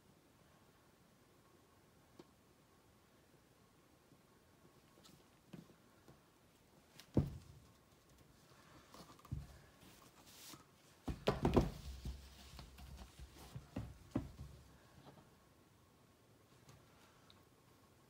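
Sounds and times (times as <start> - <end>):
canvas knocks and thumps: 7.0 - 7.7, 11.0 - 14.6
paper table covering rustling: 8.0 - 14.2.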